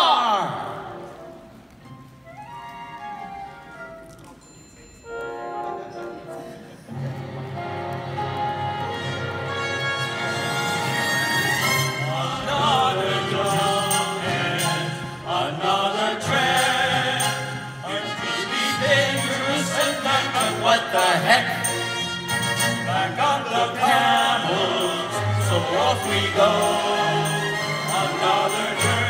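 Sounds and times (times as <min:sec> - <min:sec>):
music: 0:00.2 - 0:29.0
group of voices singing: 0:11.6 - 0:29.0.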